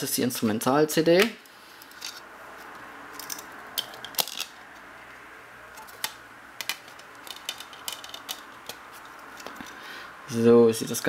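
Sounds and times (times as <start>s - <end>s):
plastic case clicks and rattles: 5.8s - 8.8s.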